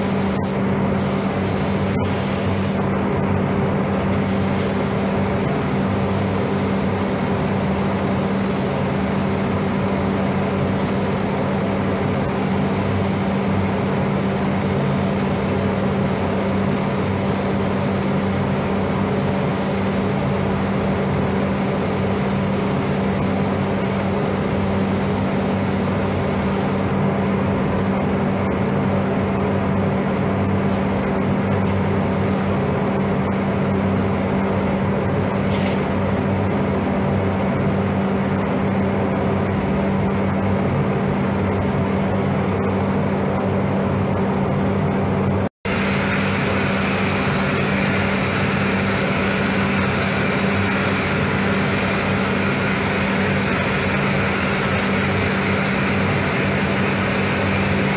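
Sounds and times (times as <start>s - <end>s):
paint spray gun hissing: 0.0s - 2.9s, 4.2s - 26.9s, 45.7s - 57.9s
ventilation fans humming: 0.0s - 57.9s.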